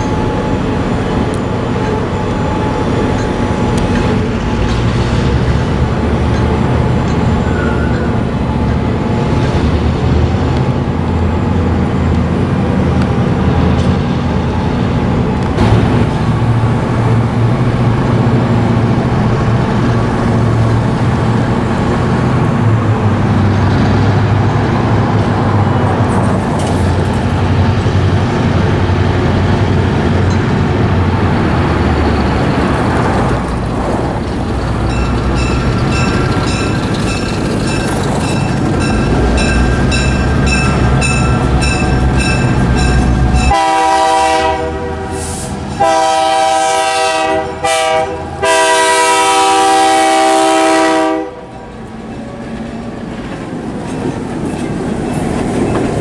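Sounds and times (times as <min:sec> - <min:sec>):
diesel locomotive engines rumbling: 0:00.0 - 0:56.0
bell ringing: 0:34.9 - 0:43.6
train horn blasts: 0:43.4 - 0:51.8.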